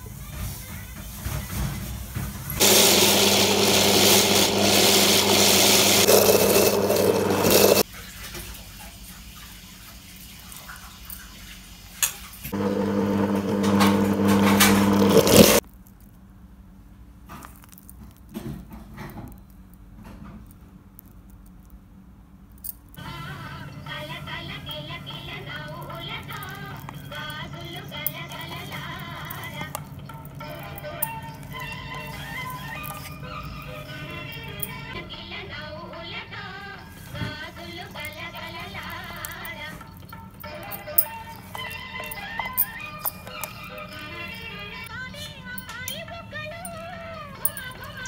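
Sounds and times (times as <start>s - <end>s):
mixer-grinder whirring: 2.6s - 7.8s, 12.5s - 15.6s
handling sounds: 25.1s - 35.0s, 36.9s - 48.0s.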